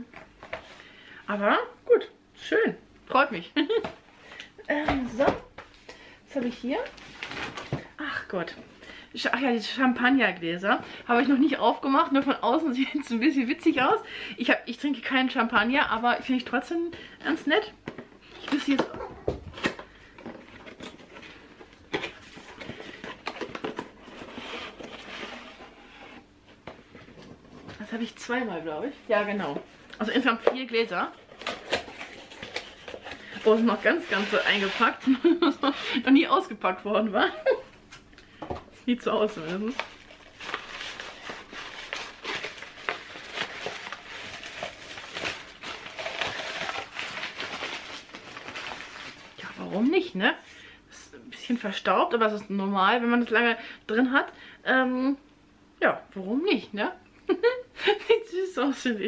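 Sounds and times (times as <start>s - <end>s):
box rustling: 18.6s - 27.8s, 31.2s - 35.6s, 39.5s - 49.4s
packaging rustling: 31.2s - 35.5s, 39.2s - 49.7s.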